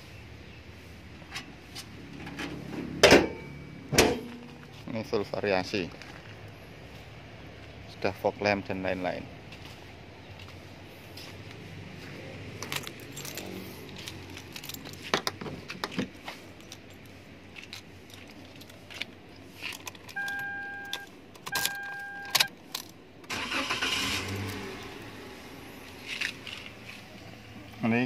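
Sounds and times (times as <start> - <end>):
keys jingling: 12.5 - 25.0
car engine starting: 19.6 - 28.0
car warning chime beeps: 20.1 - 22.5.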